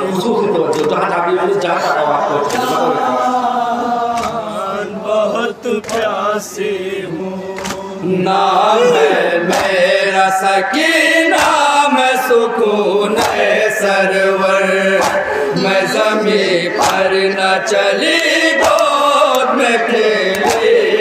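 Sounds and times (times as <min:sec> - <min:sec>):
men chanting into microphones: 0:00.0 - 0:21.0
hands beating chests: 0:13.2 - 0:13.6, 0:14.9 - 0:16.1, 0:16.8 - 0:17.3, 0:18.5 - 0:19.4, 0:20.3 - 0:20.8.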